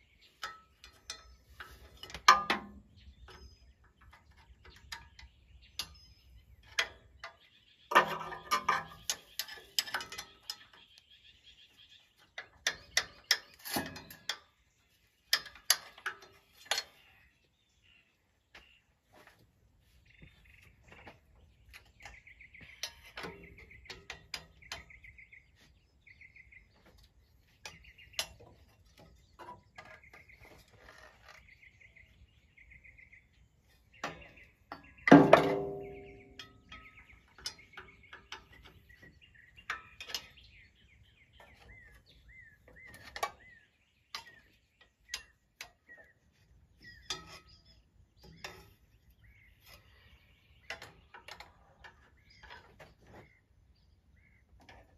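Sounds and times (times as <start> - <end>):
faint chirping trills: 0.0 - 54.9
hand tools clinking on metal: 0.2 - 11.0, 12.2 - 14.6, 15.2 - 17.2, 34.0 - 50.0.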